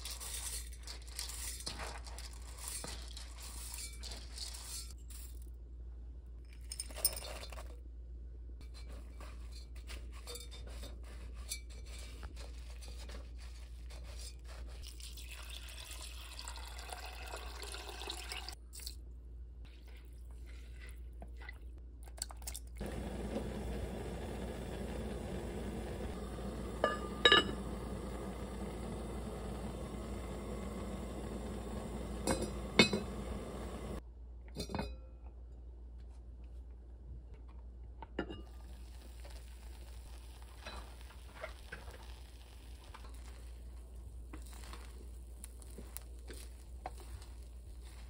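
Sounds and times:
water pouring into pot: 0:14.8 - 0:19.0, 0:22.2 - 0:34.0, 0:38.5 - 0:47.2
pot cover clinking: 0:26.6 - 0:28.1, 0:31.3 - 0:34.0
rice grains pattering into pot: 0:38.5 - 0:48.0.

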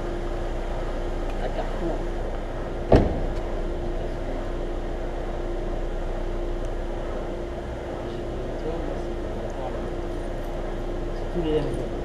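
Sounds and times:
steady hum: 0:00.0 - 0:12.0
car boot lid slamming: 0:02.9 - 0:03.5.

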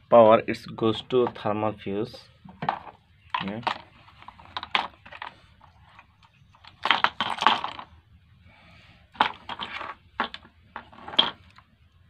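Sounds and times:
plastic casing clattering: 0:02.4 - 0:05.4, 0:06.0 - 0:07.9, 0:09.2 - 0:11.6.

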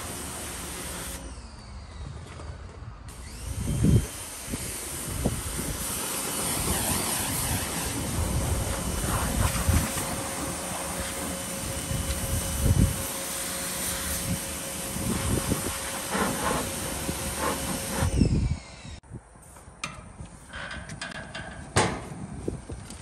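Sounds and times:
pressure washer spraying paving: 0:00.0 - 0:01.3, 0:03.1 - 0:18.2.

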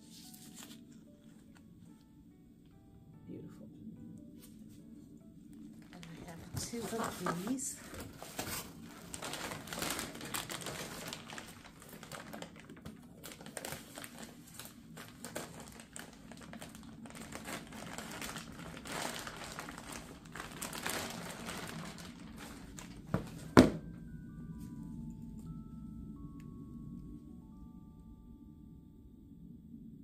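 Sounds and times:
plastic bag crinkling: 0:05.8 - 0:23.9.

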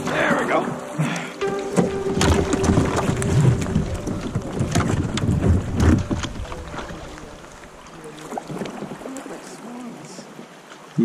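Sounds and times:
paddle strokes splashing: 0:00.0 - 0:11.0
kayak knocking on ice: 0:01.4 - 0:07.3
wind on microphone: 0:02.0 - 0:07.7.

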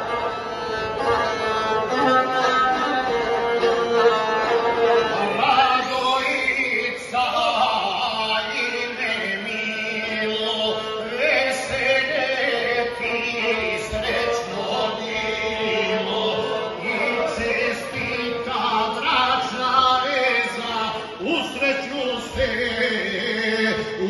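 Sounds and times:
bowed single-string fiddle: 0:00.0 - 0:23.8
man singing in chanted style: 0:05.1 - 0:24.0.

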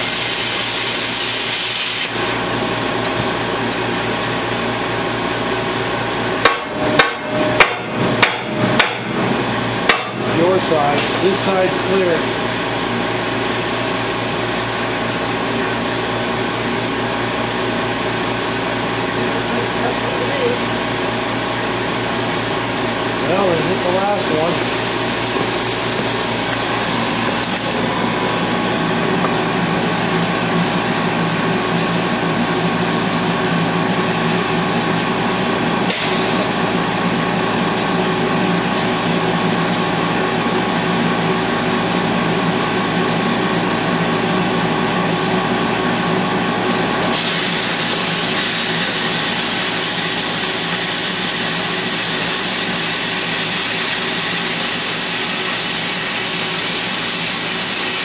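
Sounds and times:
plasma cutter hissing: 0:00.0 - 0:03.1, 0:10.4 - 0:15.1, 0:21.8 - 0:27.9, 0:47.0 - 0:58.0
portable generator running: 0:22.6 - 0:39.4.

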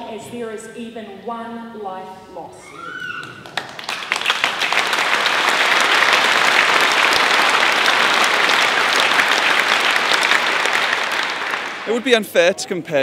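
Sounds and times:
crowd applauding: 0:03.0 - 0:12.6.

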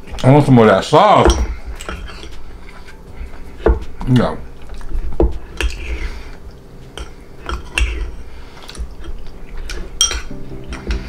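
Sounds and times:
chewing: 0:01.7 - 0:10.9
metal spoon clinking ceramic bowl: 0:10.0 - 0:11.0.

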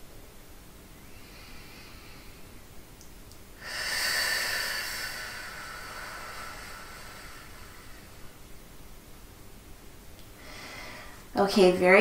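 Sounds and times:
deep breath out: 0:01.1 - 0:02.7, 0:03.6 - 0:08.4, 0:10.4 - 0:11.3.

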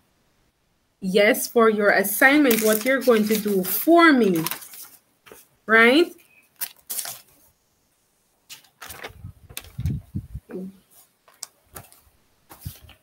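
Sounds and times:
dull low thumps: 0:09.2 - 0:10.6.

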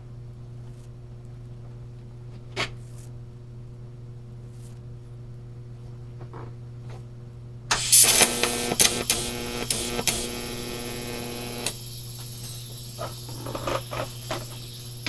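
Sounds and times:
welding arc crackling buzz: 0:07.7 - 0:15.0.

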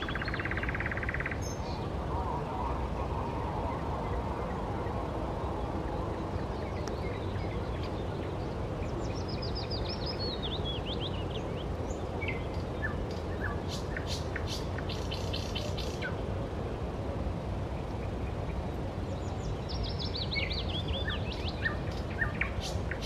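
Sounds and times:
bird trill: 0:00.0 - 0:01.6
low background rush: 0:00.0 - 0:23.0
songbirds singing: 0:00.0 - 0:23.0.

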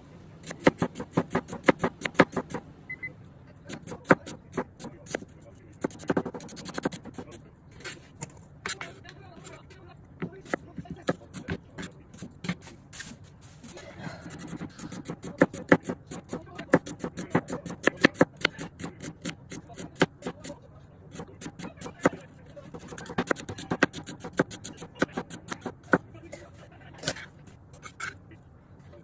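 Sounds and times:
knife slicing onion on board: 0:00.4 - 0:02.6, 0:03.7 - 0:07.4, 0:10.2 - 0:13.2, 0:14.2 - 0:26.0.

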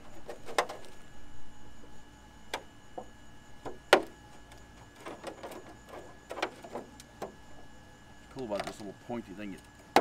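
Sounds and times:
faint steady hum: 0:00.0 - 0:10.0
clicks and crackles of plastic: 0:08.3 - 0:10.0.

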